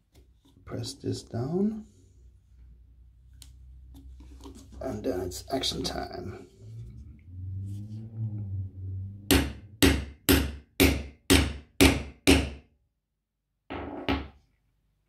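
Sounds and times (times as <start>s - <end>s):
hammer striking metal punch: 9.3s - 12.6s.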